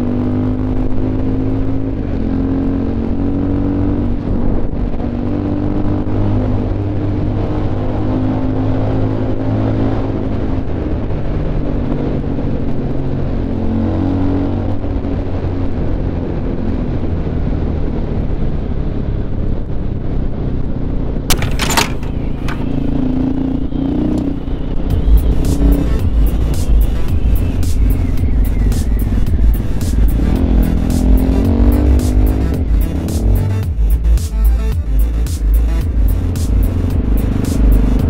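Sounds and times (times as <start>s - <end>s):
wind and road noise: 0.0s - 38.0s
motorcycle engine running: 21.3s - 38.0s.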